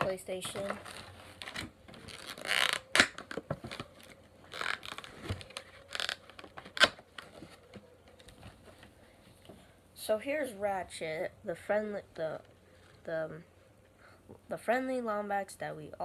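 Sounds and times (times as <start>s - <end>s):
plastic packaging crinkling and snapping: 0.4s - 9.0s.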